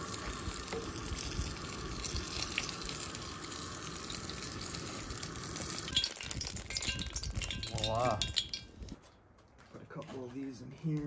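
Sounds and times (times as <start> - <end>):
egg rolls sizzling in hot oil: 0.0 - 8.5.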